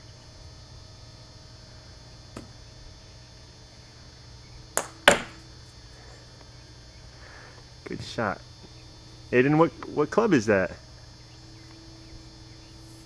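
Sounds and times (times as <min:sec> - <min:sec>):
golf club striking ball: 0:04.8 - 0:05.4.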